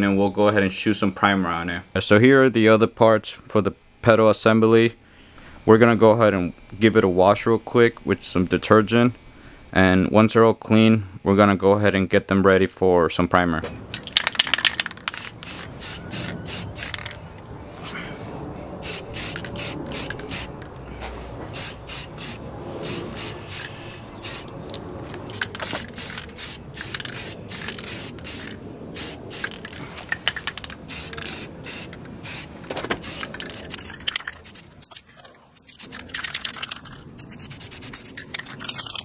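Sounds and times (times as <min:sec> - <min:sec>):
aerosol spray can hissing: 0:15.0 - 0:17.2, 0:18.8 - 0:20.6, 0:21.5 - 0:24.5, 0:25.3 - 0:29.7, 0:30.4 - 0:35.0, 0:35.6 - 0:36.0, 0:37.2 - 0:38.2.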